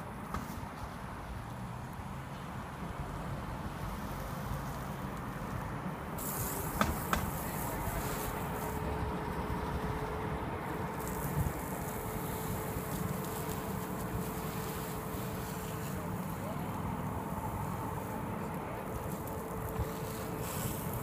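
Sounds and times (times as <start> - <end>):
steady low rumble: 5.8 - 21.0
garden hose spray hissing: 6.2 - 8.9, 10.7 - 21.0.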